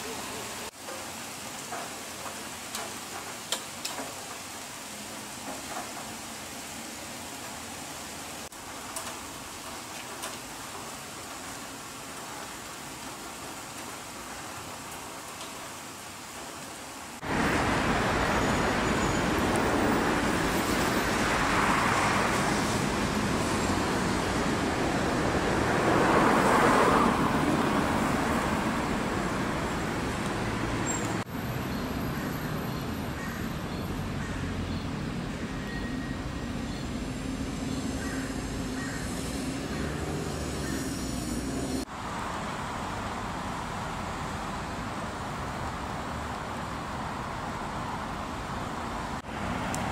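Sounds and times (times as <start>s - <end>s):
road traffic hiss in rain: 0.0s - 49.9s
vehicles passing: 17.2s - 49.9s.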